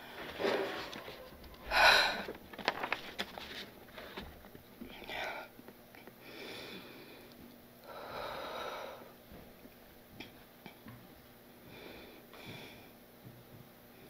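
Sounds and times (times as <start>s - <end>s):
woman sniffling: 1.6s - 2.4s.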